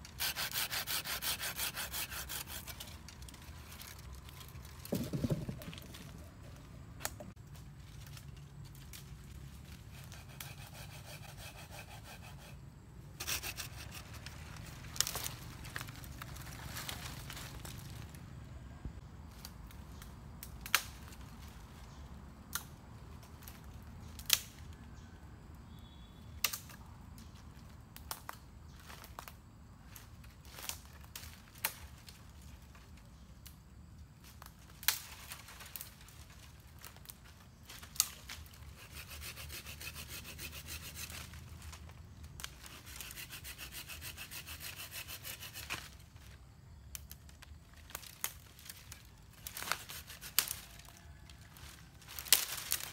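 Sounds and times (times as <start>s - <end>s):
hand saw rasping through branch: 0.0s - 4.0s, 9.8s - 12.6s, 13.2s - 14.3s, 38.7s - 41.4s, 42.5s - 45.9s, 49.5s - 50.9s
dry branches snapping: 14.0s - 18.1s, 19.4s - 21.3s, 23.3s - 24.8s, 34.4s - 38.6s, 46.9s - 52.9s.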